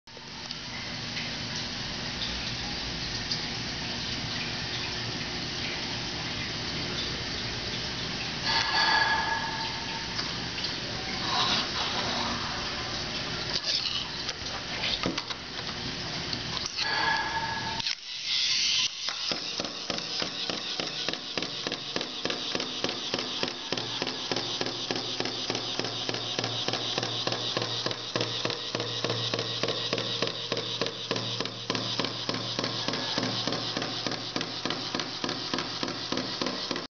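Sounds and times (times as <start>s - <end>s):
small motor humming: 16.8s - 36.9s.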